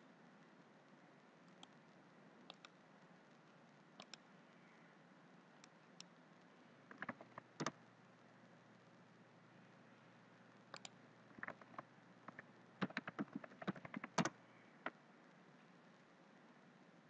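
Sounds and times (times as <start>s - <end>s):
keyboard keystrokes clicking: 6.9s - 7.7s, 10.7s - 14.4s.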